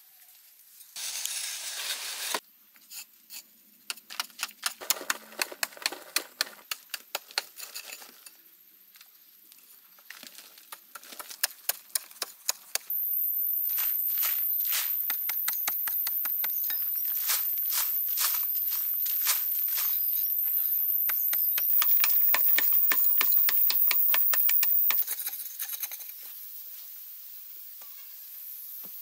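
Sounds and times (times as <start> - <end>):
soil scraping and falling: 4.8 - 11.8
steady high whine: 12.9 - 25.0.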